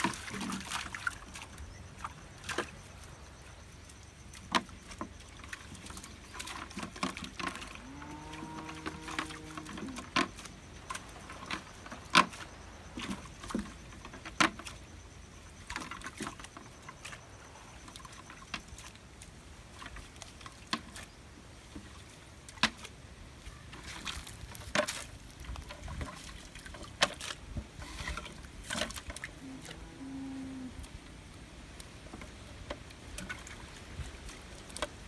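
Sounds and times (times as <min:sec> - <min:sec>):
water dripping and splashing: 0:00.0 - 0:23.0.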